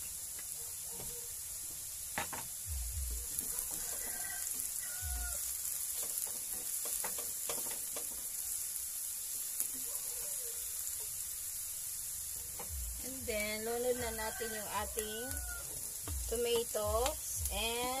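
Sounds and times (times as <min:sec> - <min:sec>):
onions sizzling in a pan: 0:00.0 - 0:18.0
spatula scraping and knocking pan: 0:03.3 - 0:04.8, 0:05.9 - 0:08.4.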